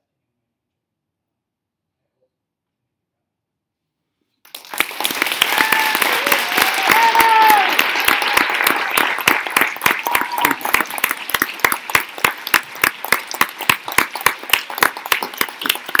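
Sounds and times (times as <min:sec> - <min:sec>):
audience applauding: 0:04.5 - 0:16.0.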